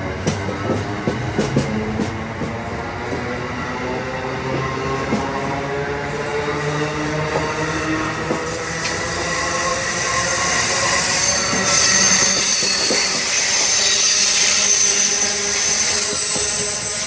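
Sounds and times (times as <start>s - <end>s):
train wheels on rails: 0.0s - 17.0s
high-pitched squeal: 7.7s - 17.0s.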